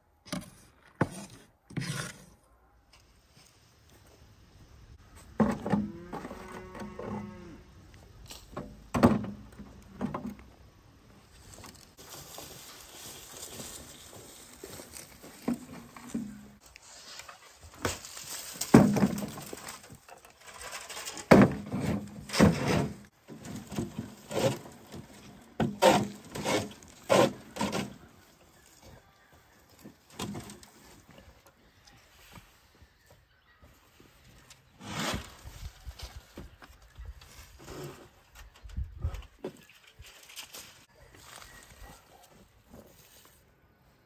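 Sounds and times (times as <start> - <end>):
cow mooing: 5.8 - 7.7.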